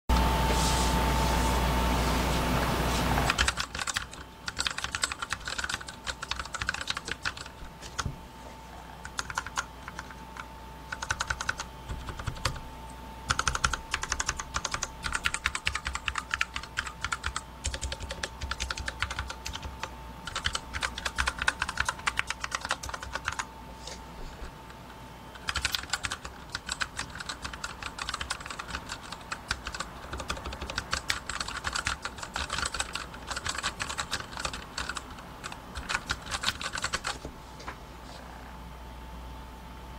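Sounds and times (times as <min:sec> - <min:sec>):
mechanical keyboard typing: 0:03.2 - 0:08.1, 0:09.0 - 0:12.6, 0:13.3 - 0:23.5, 0:24.4 - 0:37.2.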